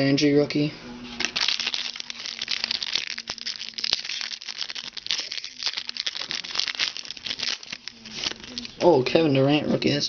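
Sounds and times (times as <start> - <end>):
foil wrapper crinkling: 1.2 - 8.9.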